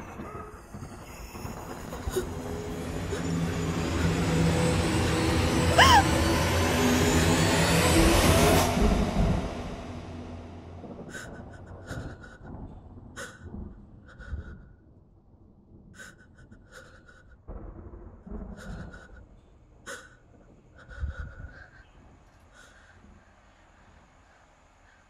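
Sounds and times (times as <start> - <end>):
person breathing unevenly: 11.0 - 14.8, 16.0 - 17.5, 18.5 - 25.0.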